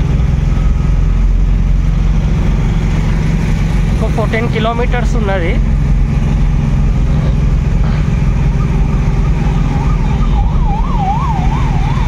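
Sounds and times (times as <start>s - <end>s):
road noise: 0.0s - 12.0s
vehicle engine running: 0.0s - 12.0s
distant siren wailing: 8.1s - 12.0s.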